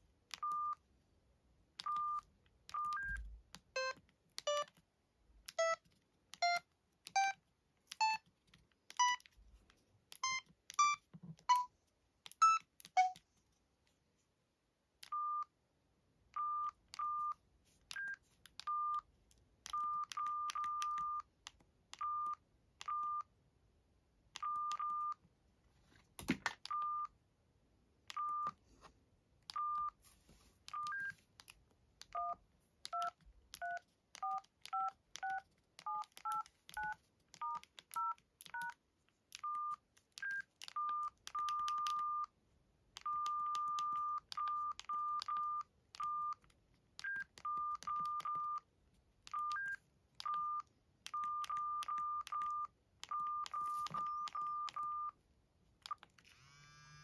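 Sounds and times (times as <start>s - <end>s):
phone keypad beeps: 0.4s - 0.8s, 1.8s - 4.7s, 5.5s - 8.3s, 9.0s - 9.3s, 10.1s - 11.7s, 12.3s - 13.2s, 15.0s - 15.5s, 16.4s - 19.1s, 19.7s - 21.3s, 22.0s - 23.3s, 24.4s - 25.2s, 26.7s - 27.2s, 28.1s - 28.6s, 29.5s - 30.0s, 30.7s - 31.2s, 32.1s - 38.8s, 39.4s - 42.3s, 43.0s - 46.4s, 47.0s - 48.7s, 49.3s - 55.2s.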